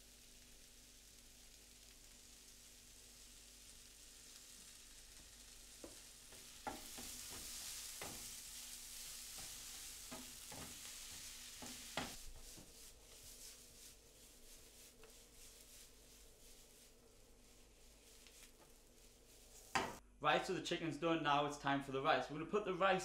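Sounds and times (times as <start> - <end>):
food sizzling in frying pan: 0.0 - 20.0
wooden spatula scraping pan: 5.8 - 20.0.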